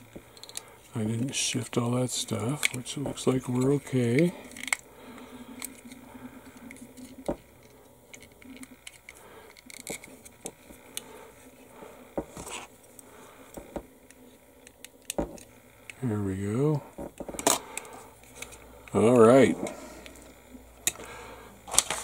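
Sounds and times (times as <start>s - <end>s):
plastic parts scratching and clicking: 0.3s - 1.4s, 2.3s - 16.0s, 17.1s - 19.1s.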